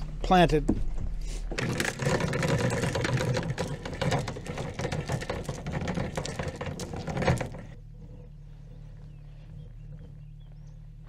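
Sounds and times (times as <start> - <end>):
steady low hum: 0.0 - 11.0
anchor rode rattling out: 0.9 - 7.9.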